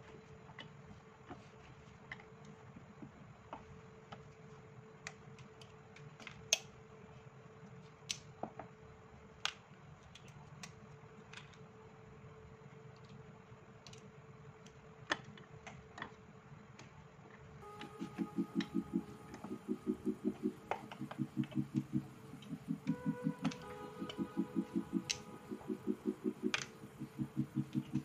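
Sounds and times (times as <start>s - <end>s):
faint steady hum: 0.0s - 28.0s
press clicks and taps: 17.6s - 28.0s.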